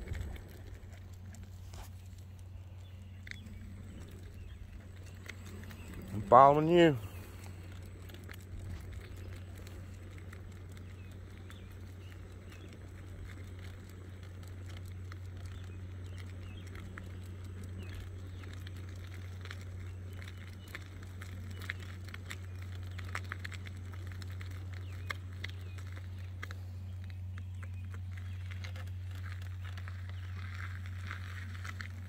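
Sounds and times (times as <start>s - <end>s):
footsteps on asphalt: 0.0s - 14.6s
steady low hum: 0.0s - 32.0s.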